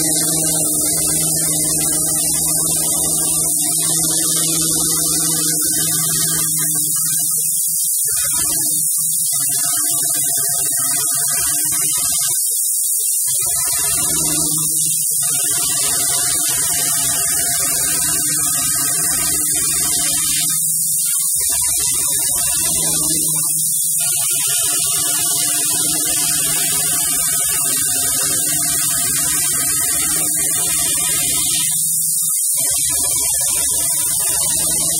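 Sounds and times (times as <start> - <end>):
low machine hum: 0.0 - 9.3
router spindle whine: 0.0 - 11.9, 13.3 - 34.9.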